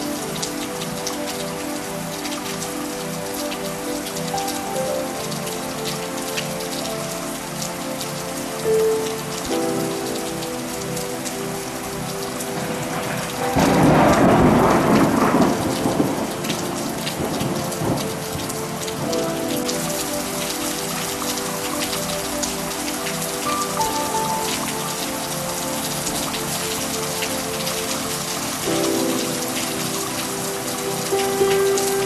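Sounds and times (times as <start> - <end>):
steady rain falling: 0.0 - 32.0
thunder clap rumbling: 12.5 - 18.4.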